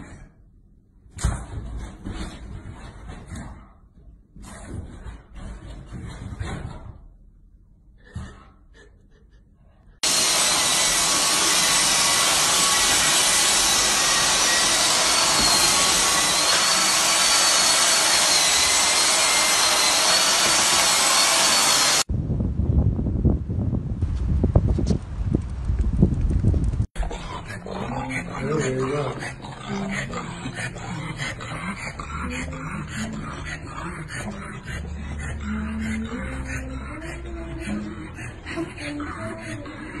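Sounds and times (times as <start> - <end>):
vacuum cleaner motor whine: 10.0 - 22.1.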